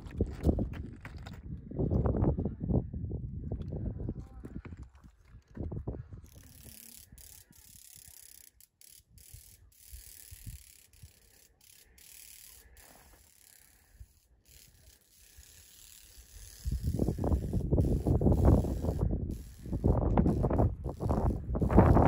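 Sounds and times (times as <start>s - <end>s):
wind rumbling on microphone: 0.0s - 7.4s, 16.3s - 22.0s.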